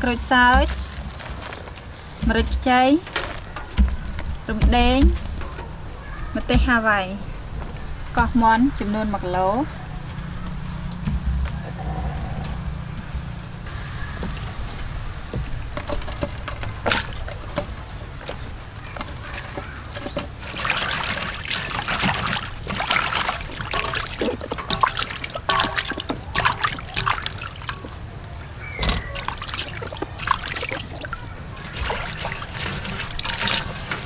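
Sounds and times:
water splashing in steel bowl: 18.3s - 34.0s.

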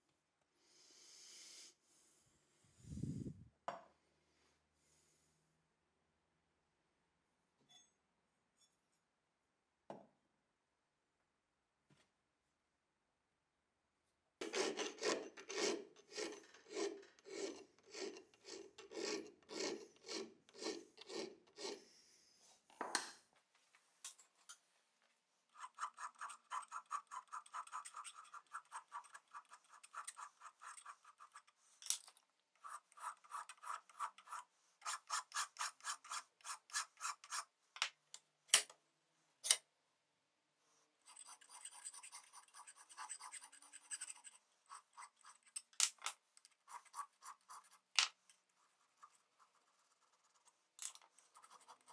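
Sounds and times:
file rasping on metal: 14.4s - 21.8s, 25.6s - 31.6s, 32.6s - 37.6s, 41.0s - 45.7s.

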